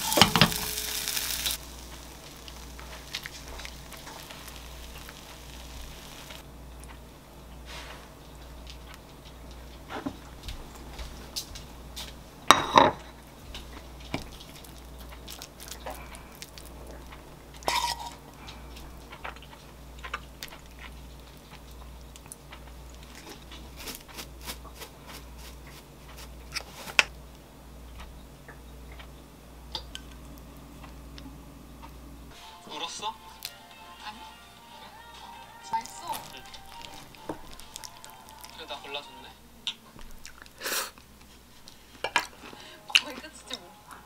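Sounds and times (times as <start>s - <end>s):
faint low hum: 0.0s - 44.0s
ceramic dishes clinking: 12.5s - 13.1s, 17.7s - 18.2s.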